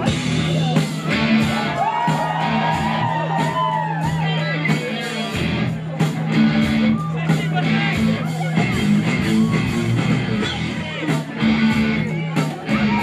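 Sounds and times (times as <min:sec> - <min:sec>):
bass line: 0:00.0 - 0:13.0
drums: 0:00.0 - 0:13.0
electric guitar: 0:00.0 - 0:13.0.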